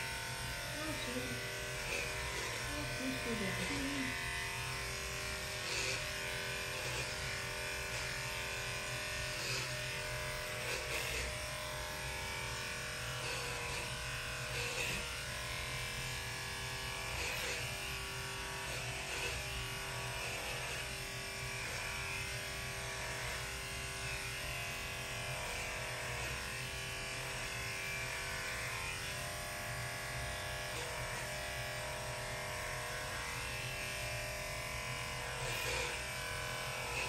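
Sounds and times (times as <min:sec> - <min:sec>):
electric clippers running: 0:00.0 - 0:37.0.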